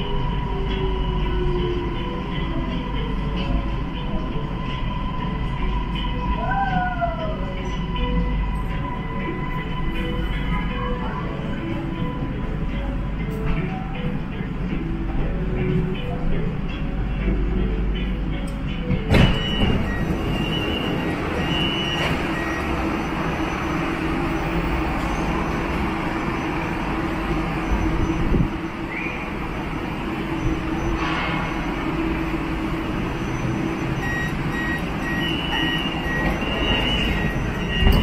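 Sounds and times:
train equipment hum and hiss: 0:00.0 - 0:38.0
two-pitch electronic beeps: 0:19.3 - 0:26.7, 0:33.1 - 0:38.0.

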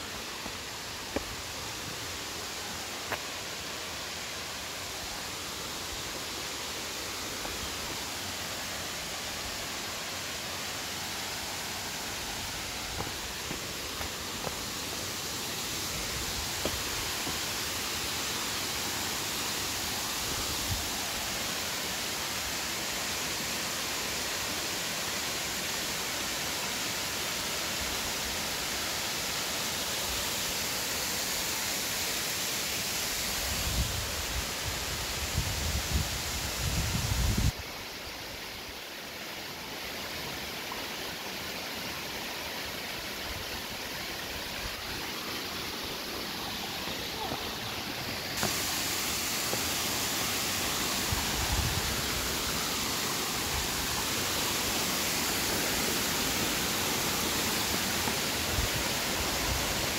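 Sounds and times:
waterfall splashing: 0:00.0 - 0:35.2, 0:40.2 - 0:59.9.

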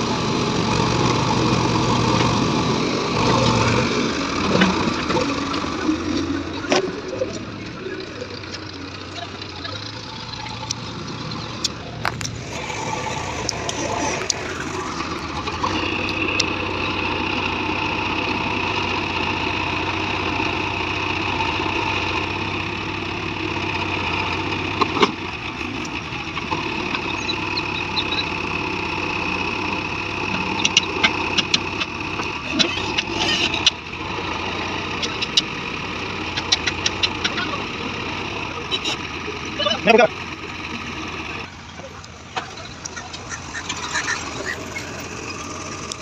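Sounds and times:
diesel engine running under load: 0:00.0 - 0:46.0
high whine: 0:11.8 - 0:18.8.

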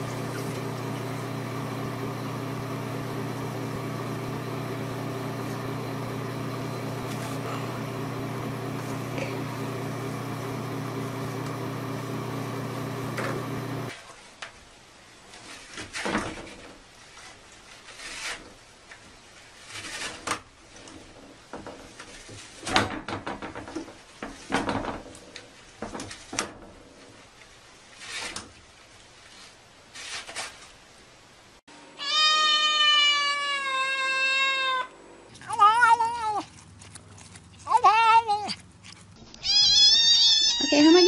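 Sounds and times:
toilet paper rustling: 0:00.0 - 0:14.6, 0:27.2 - 0:31.0
cat meowing: 0:32.0 - 0:36.5, 0:39.4 - 0:41.0.

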